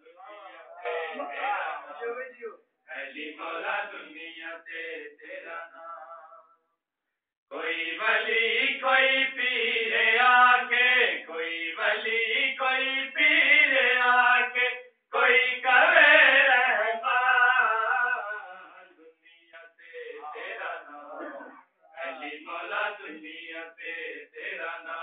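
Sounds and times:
man chanting: 0.0 - 4.4, 15.8 - 23.2.

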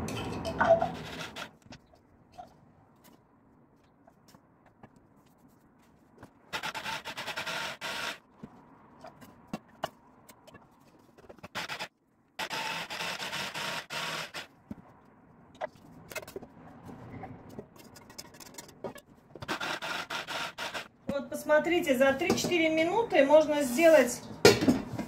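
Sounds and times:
electric hand blender chopping: 11.5 - 14.5.

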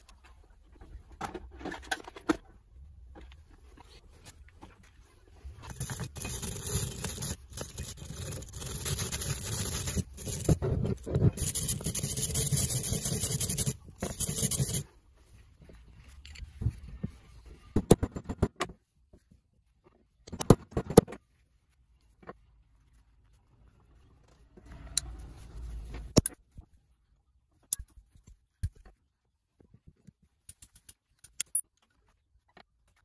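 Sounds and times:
wire brush scraping metal: 5.6 - 14.8.

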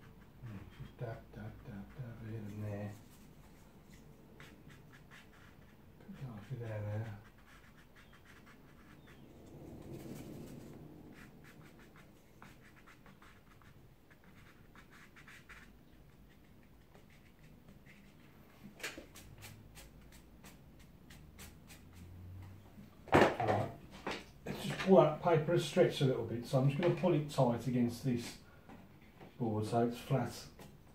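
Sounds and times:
brush scraping across paper: 0.0 - 22.3.

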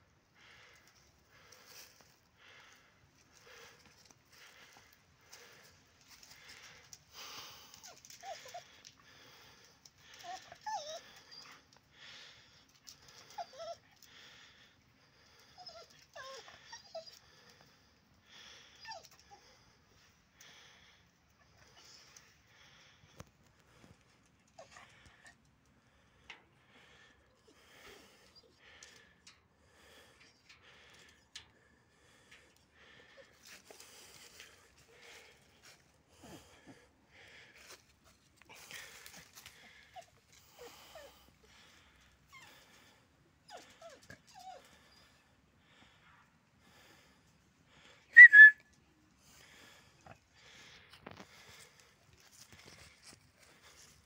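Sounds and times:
dog whining: 10.2 - 11.7, 13.3 - 13.8, 15.6 - 17.2, 43.5 - 45.1, 48.2 - 48.6.

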